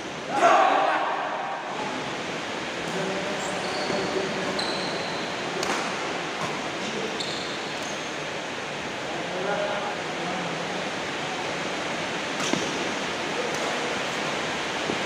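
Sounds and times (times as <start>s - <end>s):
shoes squeaking on floor: 3.4s - 5.3s, 7.0s - 8.2s
racket hitting shuttlecock: 5.6s - 6.6s.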